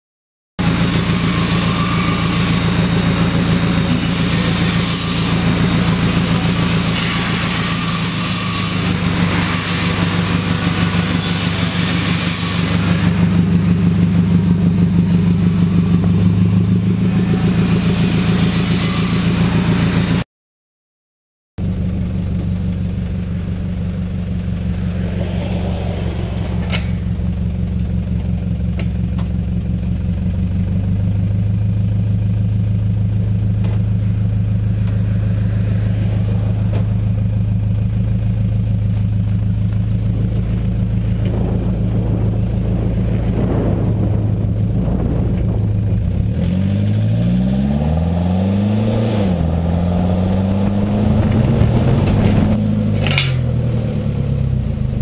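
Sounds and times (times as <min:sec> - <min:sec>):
diesel engine idling and revving: 0:00.6 - 0:20.2, 0:21.6 - 0:55.0
wind buffeting microphone: 0:41.0 - 0:46.6, 0:49.4 - 0:52.7.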